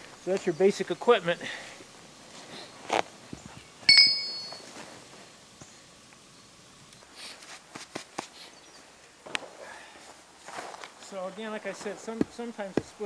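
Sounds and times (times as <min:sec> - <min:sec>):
steel clinking on steel: 0:03.9 - 0:04.7
footsteps in snow: 0:10.1 - 0:13.0.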